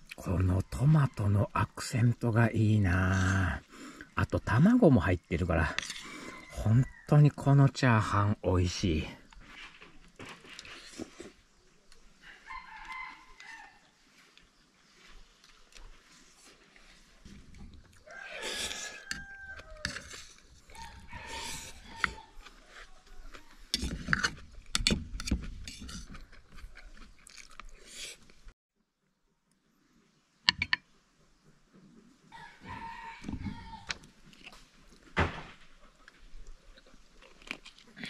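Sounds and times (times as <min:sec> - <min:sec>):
roosters crowing: 0:05.6 - 0:07.6, 0:12.2 - 0:14.0, 0:18.0 - 0:23.8, 0:32.3 - 0:34.1.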